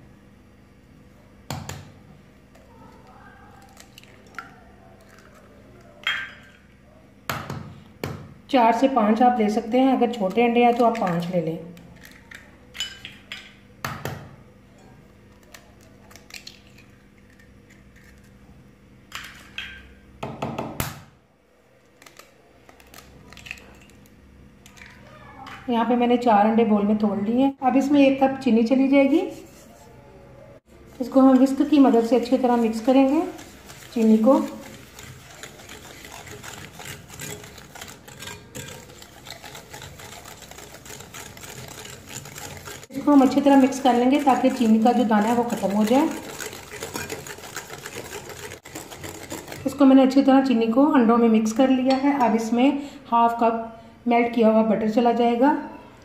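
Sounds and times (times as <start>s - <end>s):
whisk clicking against glass bowl: 31.2s - 49.9s.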